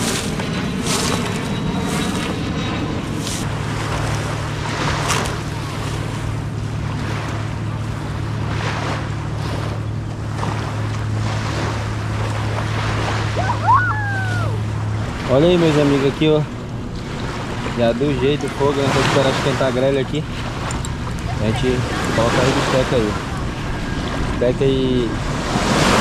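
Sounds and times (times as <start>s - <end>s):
motorboat engine hum: 0.0s - 26.0s
water wash: 0.0s - 26.0s
wind on microphone: 0.0s - 26.0s.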